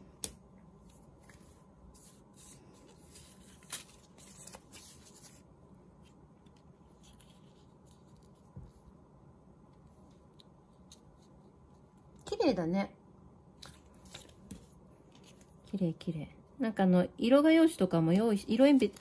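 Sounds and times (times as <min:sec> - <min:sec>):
paper strips rustling and sliding: 0:00.8 - 0:08.8.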